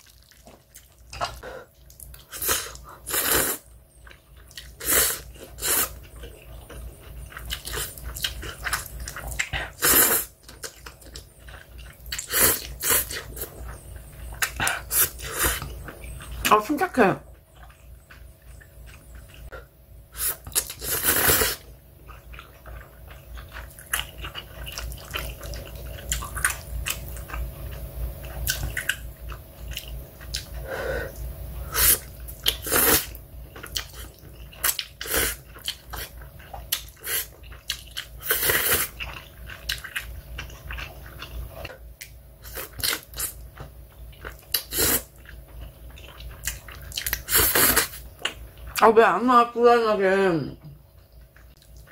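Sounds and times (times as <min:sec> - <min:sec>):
person chewing: 0:00.0 - 0:16.5, 0:17.4 - 0:48.8, 0:50.9 - 0:51.9
person slurping noodles: 0:02.3 - 0:03.6, 0:04.8 - 0:06.0, 0:09.7 - 0:10.3, 0:20.2 - 0:21.6, 0:30.6 - 0:33.2, 0:38.2 - 0:38.9, 0:47.3 - 0:48.0.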